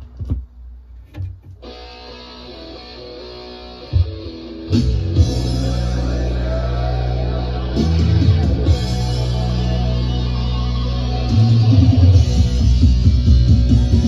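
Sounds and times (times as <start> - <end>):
rock music from a record: 1.4 - 14.0.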